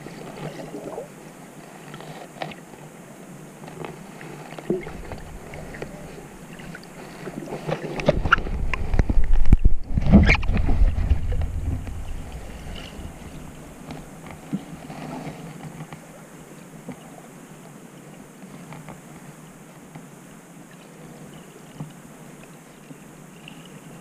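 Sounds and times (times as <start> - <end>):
water moving underwater: 0.0 - 19.6
rushing water surge with rumble: 2.6 - 15.5.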